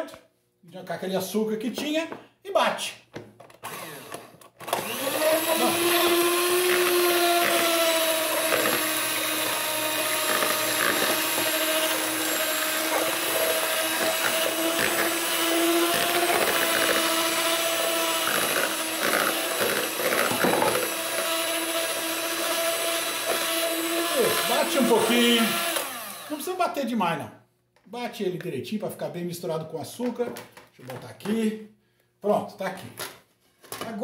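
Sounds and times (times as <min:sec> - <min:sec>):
electric hand mixer whipping: 0:03.6 - 0:26.5.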